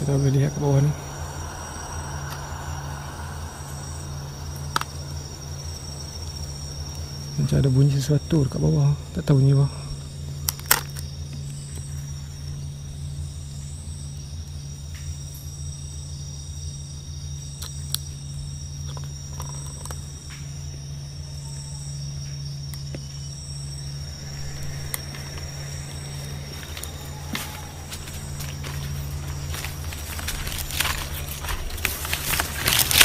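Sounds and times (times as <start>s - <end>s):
cricket trill: 0.0s - 33.0s
insect chirping in high pulses: 0.0s - 33.0s
low steady hum: 0.0s - 33.0s.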